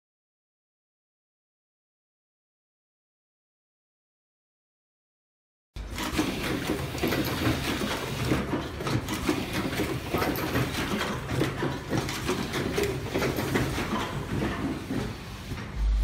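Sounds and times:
crimping machine rattling clicks: 5.8s - 15.1s.

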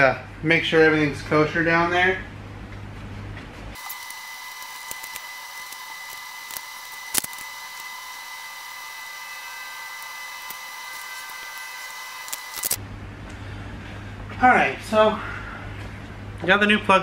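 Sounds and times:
high-pitched whine: 3.8s - 12.8s.

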